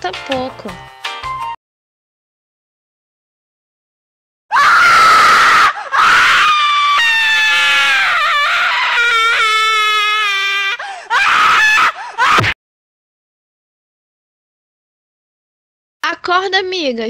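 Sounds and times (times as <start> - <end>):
young female voices screaming: 4.5 - 12.6.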